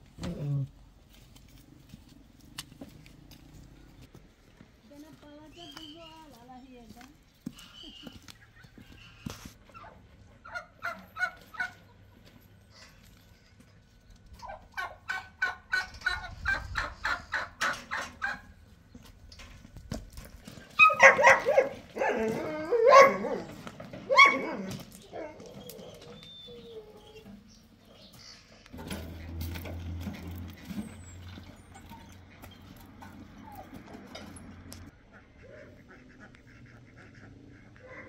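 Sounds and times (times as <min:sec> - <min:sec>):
turkeys gobbling: 0:07.6 - 0:12.1, 0:14.4 - 0:18.6, 0:34.8 - 0:38.0.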